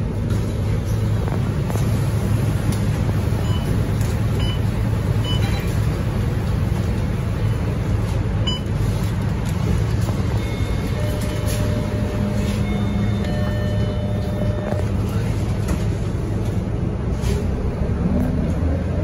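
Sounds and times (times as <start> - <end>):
bus engine drone: 0.0 - 19.0.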